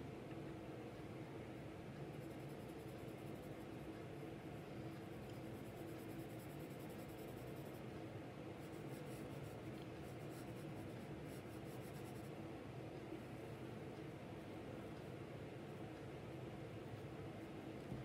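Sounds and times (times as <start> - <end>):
pencil scratching on paper: 2.1 - 7.9, 8.6 - 12.3.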